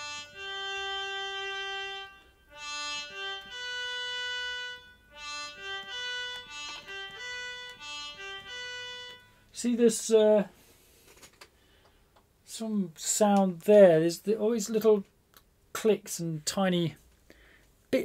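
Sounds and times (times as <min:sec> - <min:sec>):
electronic wind instrument melody: 0:00.0 - 0:09.5.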